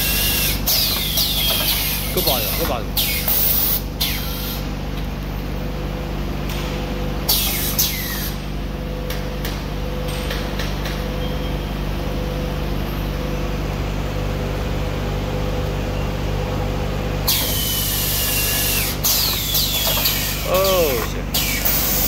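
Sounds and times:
packing machine humming: 0:00.0 - 0:22.0
pneumatic air hiss: 0:07.3 - 0:08.4, 0:17.2 - 0:22.0.

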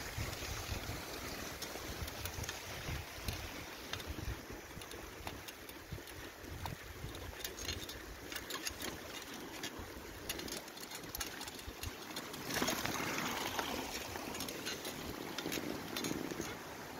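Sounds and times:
wheel hissing through slush: 0:00.0 - 0:07.1, 0:08.0 - 0:16.9
wind rumble on microphone: 0:00.0 - 0:10.4
bicycle tyres crunching snow: 0:00.0 - 0:16.9
bike rattling: 0:00.0 - 0:16.9.

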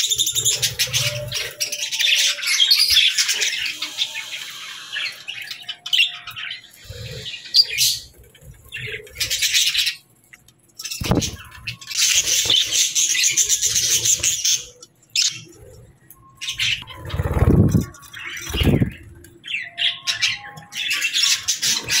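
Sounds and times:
budgerigars chattering and chirping: 0:10.8 - 0:15.8, 0:16.4 - 0:22.0
wings fluttering: 0:11.0 - 0:11.5, 0:16.6 - 0:19.2.

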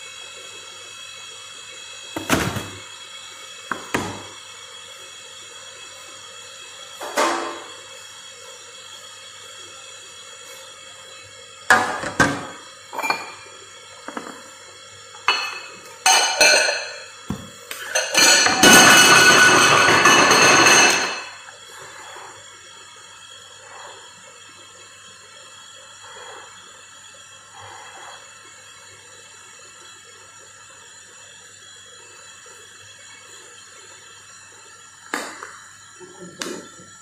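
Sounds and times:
dishes and utensils clinking: 0:11.7 - 0:13.5, 0:15.2 - 0:17.1, 0:17.8 - 0:21.4.

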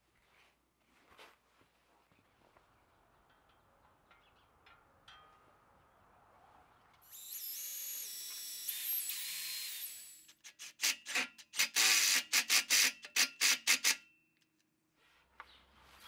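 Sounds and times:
cordless drill motor whining: 0:07.1 - 0:13.6.

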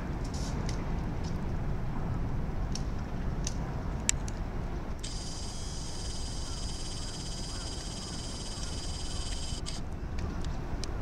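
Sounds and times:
high even buzz: 0:05.0 - 0:09.8.

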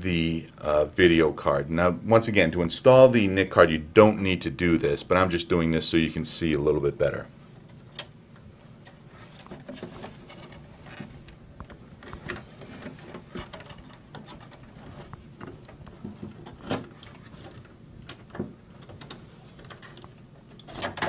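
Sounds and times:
clicks and scrapes of computer parts: 0:08.8 - 0:21.0.

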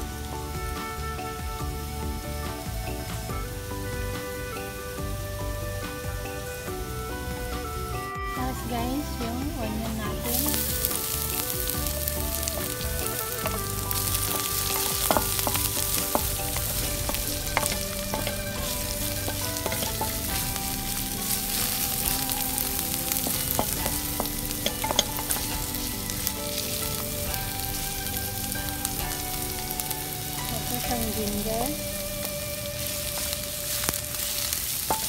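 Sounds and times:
onion sizzling in hot oil: 0:00.0 - 0:35.0
wooden spatula scraping pan: 0:10.3 - 0:31.9.

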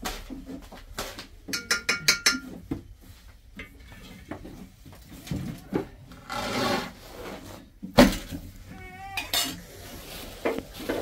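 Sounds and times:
metal pots clinking and knocking: 0:01.5 - 0:02.9, 0:03.5 - 0:04.5, 0:09.2 - 0:09.6
metal scrape: 0:06.2 - 0:07.7.

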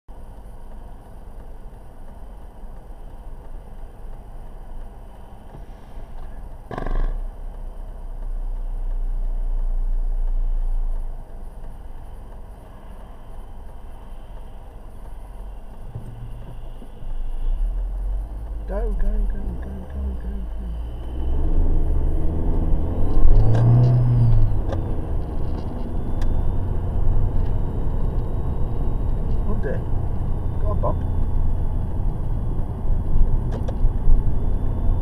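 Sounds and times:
car engine idling: 0:00.1 - 0:35.0.

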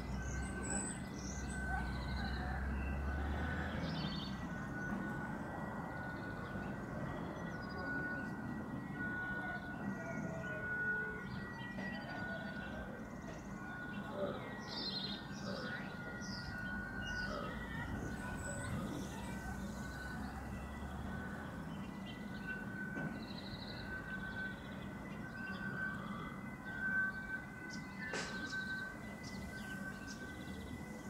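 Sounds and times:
small birds chirping: 0:21.4 - 0:31.0.

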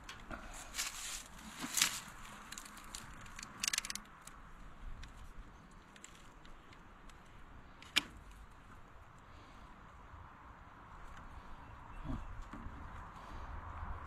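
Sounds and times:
hand tool clicking on wire: 0:02.6 - 0:04.1.

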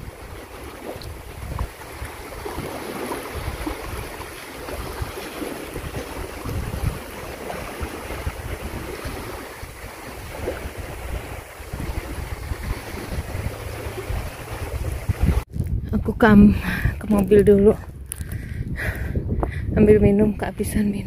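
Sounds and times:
sea waves washing: 0:00.0 - 0:15.5
wind gusting on microphone: 0:00.0 - 0:21.0.

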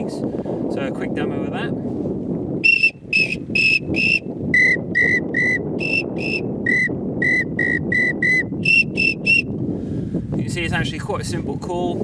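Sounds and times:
wind noise on microphone: 0:00.0 - 0:12.0
duck whistle pips: 0:02.6 - 0:09.5.

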